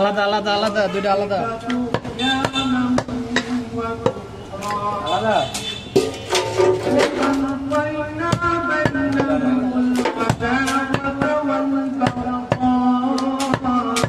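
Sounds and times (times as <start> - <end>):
cleaver chopping on wooden block: 9.9 - 11.4, 12.0 - 14.0.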